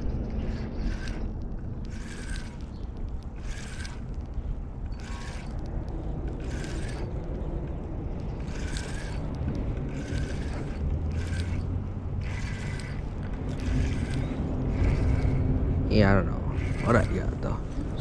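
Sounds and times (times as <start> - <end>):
spinning reel cranking: 0.0 - 2.7, 3.4 - 4.2, 4.9 - 5.6, 6.4 - 7.1, 8.4 - 9.3, 9.9 - 15.4, 16.5 - 18.0
steady low rumble: 0.0 - 18.0.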